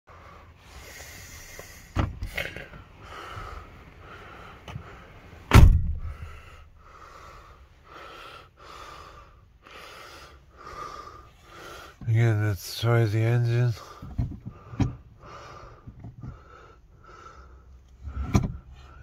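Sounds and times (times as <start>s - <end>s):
car door slamming: 5.5s - 6.2s.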